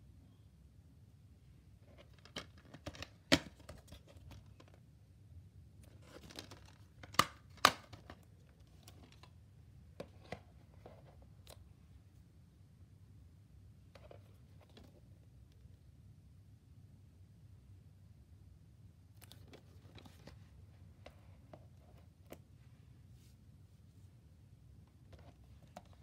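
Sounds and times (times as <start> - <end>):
plastic cases clicking and clacking: 1.9 - 4.8, 5.9 - 9.3.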